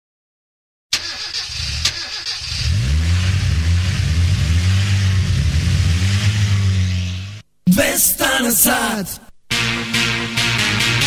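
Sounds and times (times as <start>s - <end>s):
engine starting and running: 0.9s - 7.4s.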